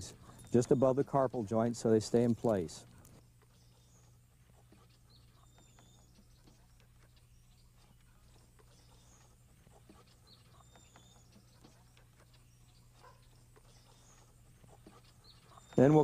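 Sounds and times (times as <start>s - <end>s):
steady low hum: 0.0s - 16.0s
faint high chirps: 10.1s - 14.4s.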